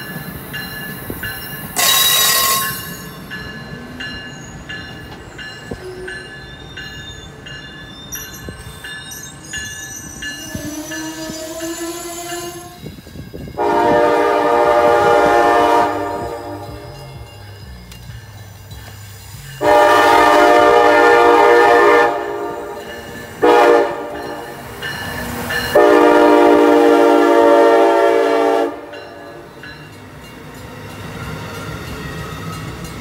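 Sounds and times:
passenger cars rumbling on rails: 0.0s - 33.0s
train horn blasts: 1.8s - 2.9s, 13.6s - 17.0s, 19.6s - 22.8s, 23.4s - 24.4s, 25.7s - 29.2s.

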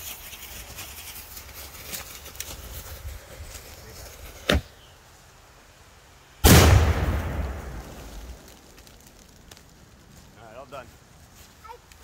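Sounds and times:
feet running through dry leaves: 0.0s - 4.4s
firework exploding with loud boom: 6.4s - 9.9s
firework sharp crack: 6.4s - 10.0s.

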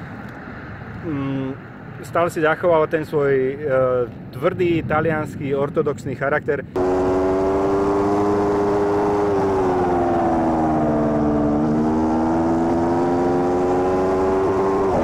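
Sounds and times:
motorcycle engine and exhaust: 6.8s - 15.0s.

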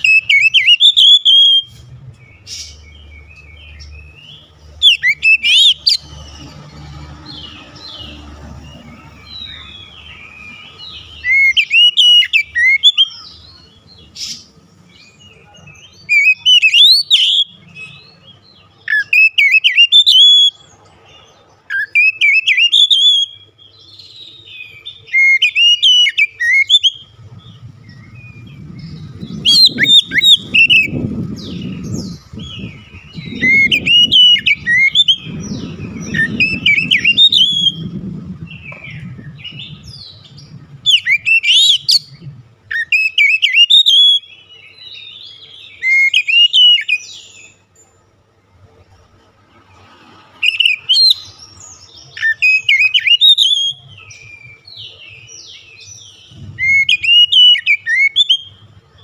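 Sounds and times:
bird singing whistled phrases: 0.0s - 1.8s, 2.4s - 6.0s, 9.3s - 14.4s, 15.4s - 18.1s, 18.8s - 20.6s, 21.7s - 27.1s, 27.9s - 38.0s, 38.8s - 47.6s, 50.4s - 51.3s, 52.1s - 58.6s.

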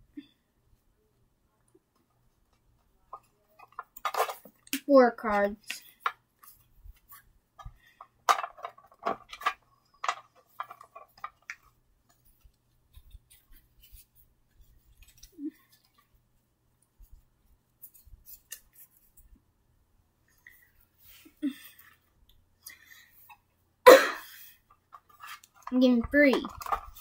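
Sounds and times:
cards rustling: 2.0s - 16.3s, 17.0s - 19.4s, 24.6s - 27.0s.

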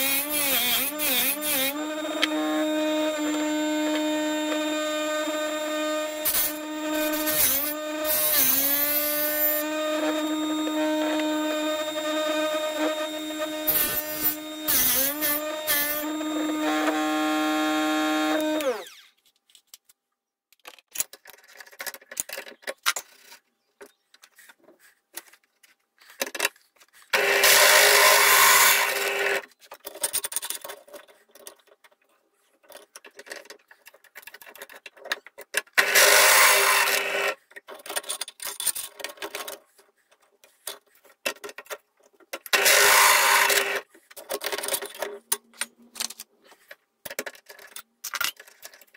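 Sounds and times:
drill cutting steel plate: 0.0s - 19.1s, 27.2s - 29.4s, 35.8s - 37.4s, 42.6s - 43.8s
sharpener motor running: 0.0s - 19.1s
small clicks and rattles: 19.2s - 26.9s, 29.6s - 35.8s, 44.1s - 48.9s.

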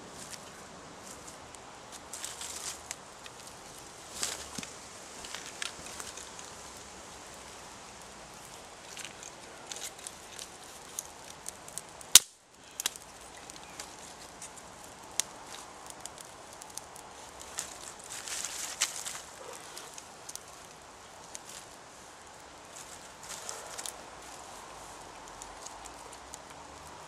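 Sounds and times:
fire hissing: 0.0s - 27.0s
twigs crackling in fire: 0.0s - 27.0s
sharp crack: 8.3s - 21.6s.

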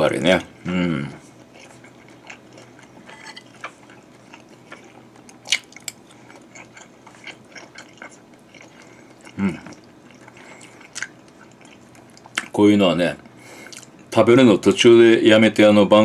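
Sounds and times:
person chewing: 0.9s - 12.6s, 13.2s - 14.1s.

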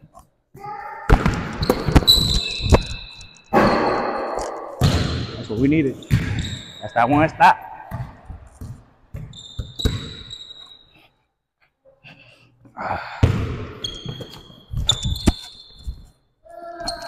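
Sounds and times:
sneaker squeaks: 0.0s - 11.2s, 13.2s - 17.0s
basketball bouncing on court: 1.1s - 6.8s, 7.8s - 10.3s, 13.2s - 15.4s.

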